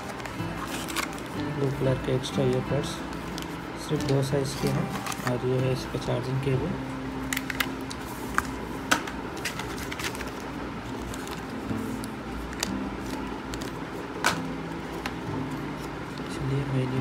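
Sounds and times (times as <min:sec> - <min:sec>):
plastic bag rustling: 0:00.0 - 0:01.7, 0:02.9 - 0:05.6, 0:07.5 - 0:14.1.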